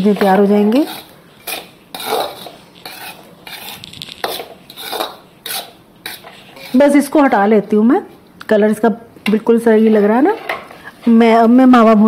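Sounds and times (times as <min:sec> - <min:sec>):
metal spatula scraping flour: 0:00.0 - 0:07.3, 0:09.6 - 0:10.6.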